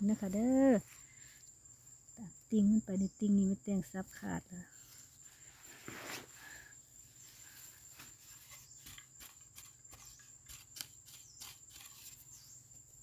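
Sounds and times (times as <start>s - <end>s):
hand scraping dry soil: 4.7s - 6.6s, 7.2s - 12.6s.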